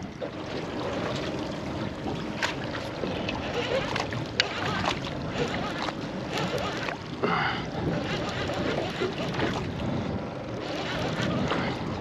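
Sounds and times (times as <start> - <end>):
water slapping against boat: 0.0 - 12.0
wind on microphone: 7.6 - 12.0.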